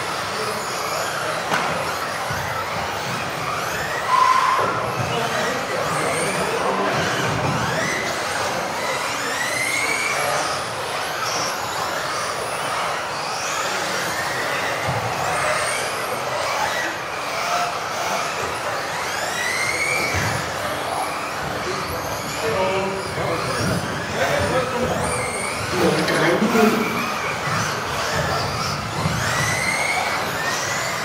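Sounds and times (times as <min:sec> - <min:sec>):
electric toy car motors whining: 0:00.0 - 0:31.0.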